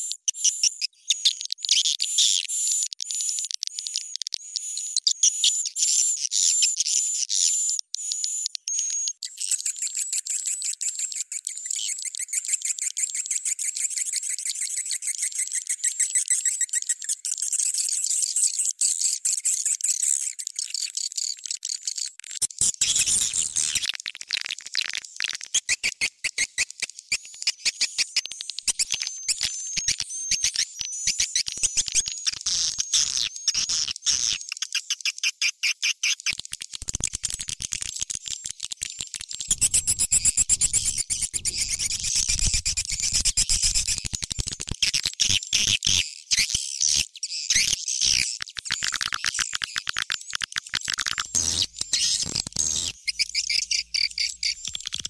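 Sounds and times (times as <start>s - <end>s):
high-pitched bird chirping: 39.5s - 50.0s, 50.9s - 55.0s
fast clicks: 54.2s - 55.0s.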